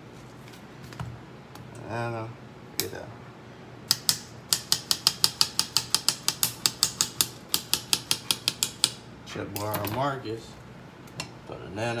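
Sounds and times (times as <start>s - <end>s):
knife chopping on stone countertop: 4.0s - 9.0s.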